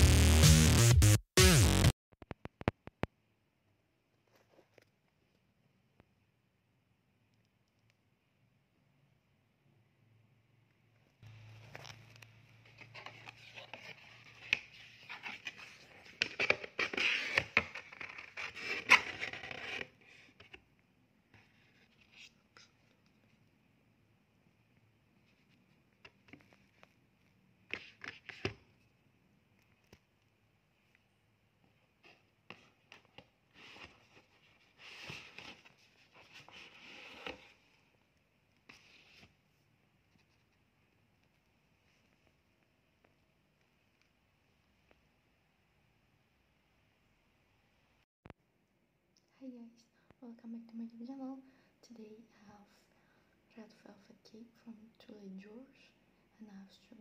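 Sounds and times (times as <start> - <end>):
cardboard scraping and rubbing: 12.7 - 20.4, 32.5 - 37.7.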